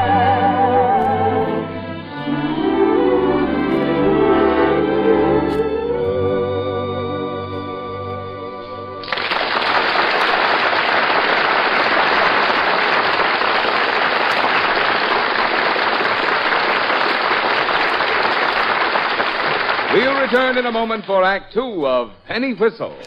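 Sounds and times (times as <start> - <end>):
audience applauding: 9.0 - 21.3.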